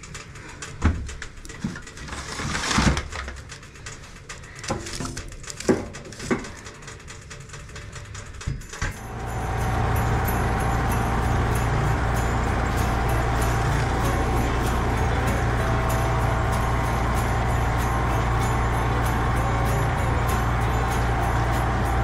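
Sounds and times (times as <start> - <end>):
snowblower engine running: 5.5 - 22.0.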